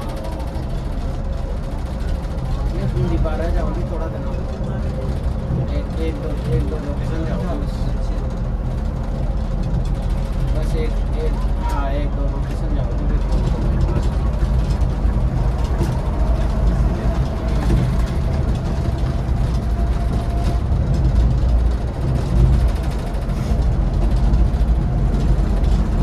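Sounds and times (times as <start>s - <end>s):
coach engine and road rumble: 0.0s - 26.0s.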